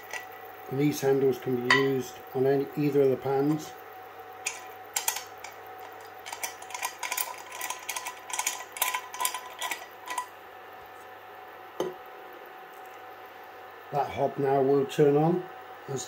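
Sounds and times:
cooling fans humming: 0.0 - 16.0
pan handle clicks and rattles: 4.4 - 10.3.

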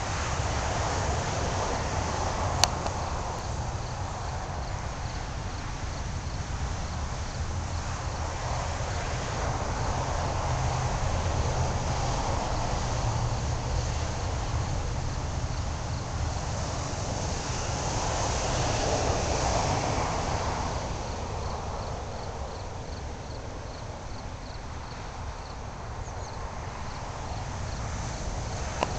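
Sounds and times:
cricket chirping: 0.8 - 28.9.

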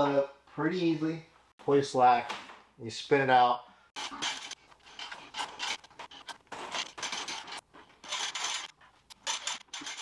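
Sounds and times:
hose scraping on plastic floor: 4.0 - 10.0.

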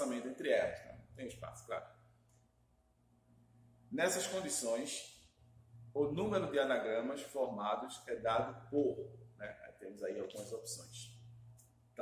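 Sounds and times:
man speaking: 0.0 - 1.9, 3.9 - 5.2, 6.0 - 11.2
faint low hum: 0.0 - 12.0.

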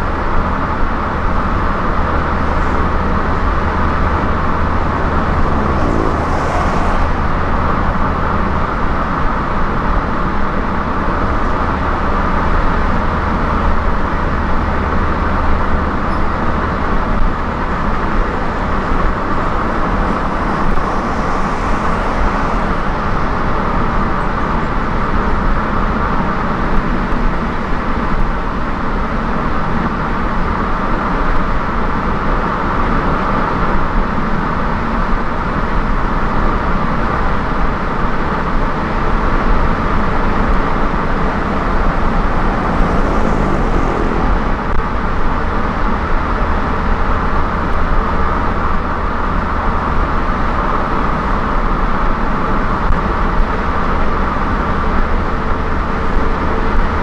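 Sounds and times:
car engine hum: 0.0 - 57.0
tyre roar: 2.3 - 8.8, 17.6 - 24.7, 39.7 - 45.8.

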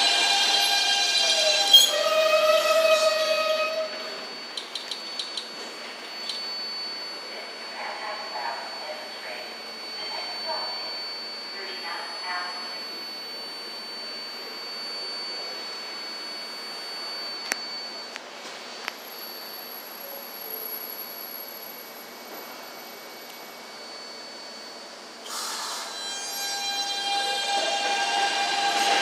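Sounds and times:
train approaching with whining tones: 0.0 - 18.0, 22.3 - 29.0
subway train motor whine: 0.0 - 29.0
track clicks: 4.5 - 6.5.

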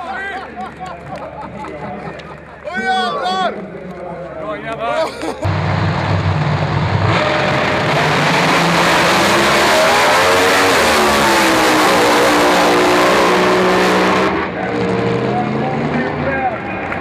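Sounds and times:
drag racing cars at full throttle: 5.4 - 17.0.

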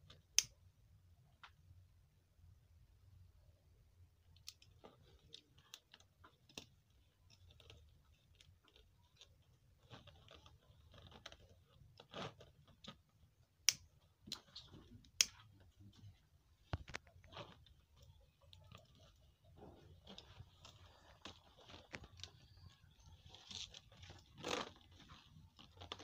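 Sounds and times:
plastic mat bag crinkling: 16.7 - 26.0.

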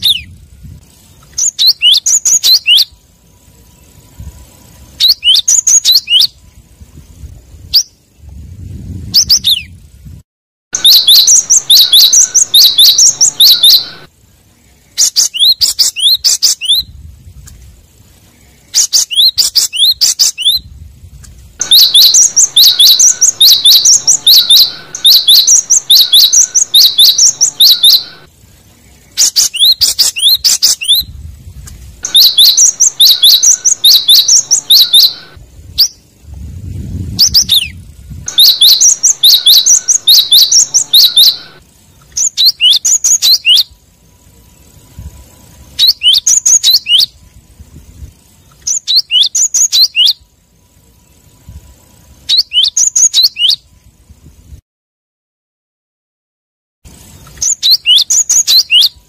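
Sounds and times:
bird singing high phrases: 0.0 - 10.1, 10.8 - 17.0, 17.8 - 20.8, 21.6 - 47.4, 48.1 - 54.0, 56.9 - 59.0
faint sharp bird calls: 21.6 - 31.0.

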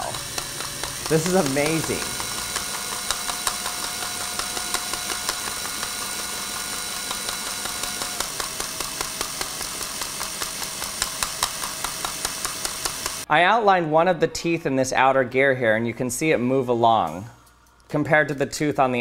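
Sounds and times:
drill motor whine: 0.0 - 13.2
plastic gears clicking: 0.0 - 13.2.

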